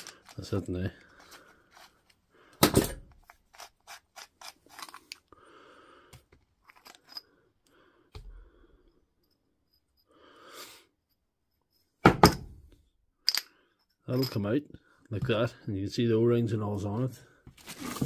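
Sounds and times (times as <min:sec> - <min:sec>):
parts scraping: 0:00.0 - 0:05.3, 0:06.6 - 0:07.4
knock on tool part: 0:12.0 - 0:12.5.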